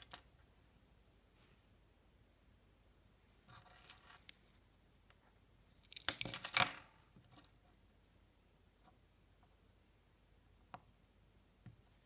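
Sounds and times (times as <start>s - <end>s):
keyring jingling: 5.8s - 6.8s.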